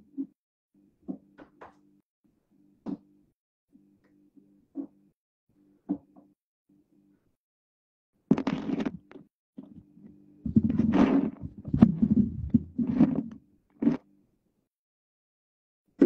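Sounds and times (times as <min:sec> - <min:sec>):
fingers rubbing phone microphone: 0:08.3 - 0:09.9, 0:10.5 - 0:14.0.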